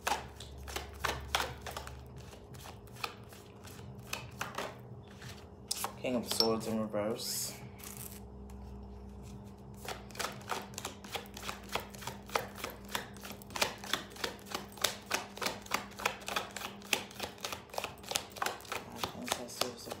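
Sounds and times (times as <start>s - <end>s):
cards being shuffled: 0.0s - 6.0s, 7.8s - 20.0s.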